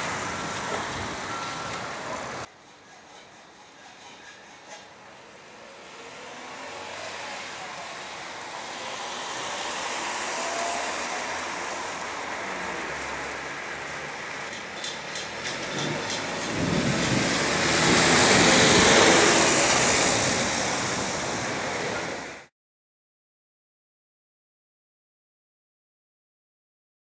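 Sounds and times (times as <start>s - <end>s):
rolling thunder rumble: 15.7s - 21.7s.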